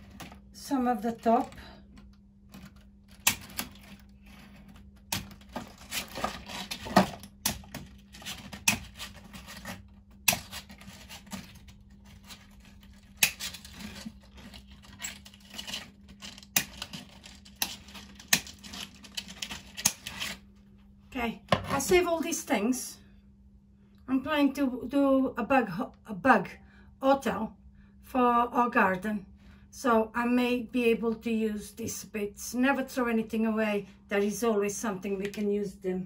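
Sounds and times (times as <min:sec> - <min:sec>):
hand cutters snipping wire mesh: 0:13.1 - 0:14.5.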